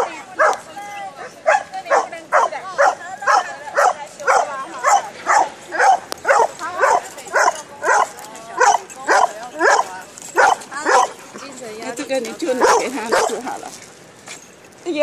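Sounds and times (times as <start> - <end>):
dog barking: 0.0 - 0.6, 1.2 - 11.2, 12.6 - 13.5.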